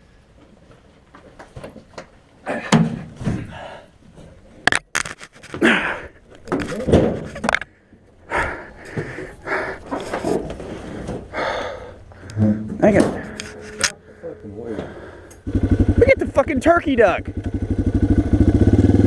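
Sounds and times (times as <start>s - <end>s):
clunks thuds and scraping: 6.4s - 7.8s, 12.2s - 15.2s.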